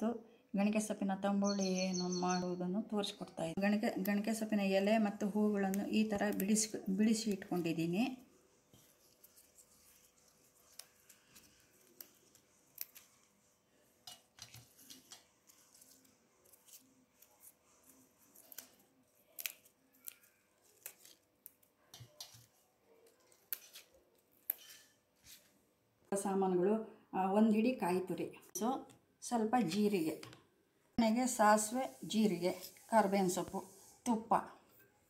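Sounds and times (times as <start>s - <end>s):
leaves snapping and rustling: 10.6s - 13.3s, 14.1s - 24.7s.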